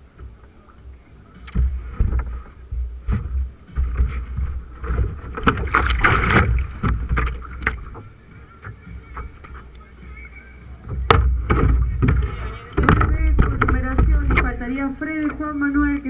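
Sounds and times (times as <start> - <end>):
water splashing: 0.0 - 15.9
knocks on kayak hull: 10.9 - 14.6.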